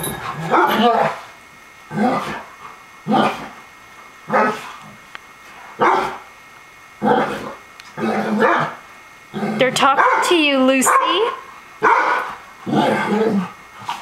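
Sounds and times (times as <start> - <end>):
dog barking: 0.4 - 1.2, 4.3 - 4.6, 5.8 - 6.2, 8.4 - 8.8, 9.9 - 12.3.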